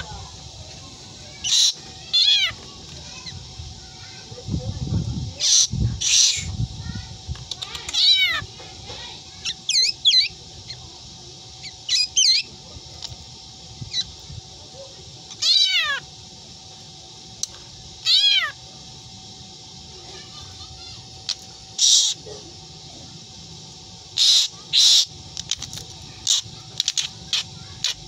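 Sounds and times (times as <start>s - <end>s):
harsh hissing bird calls: 0.0s - 28.0s
bird mimicking cat meows: 1.5s - 2.6s, 7.6s - 8.5s, 15.3s - 16.0s, 18.0s - 18.6s.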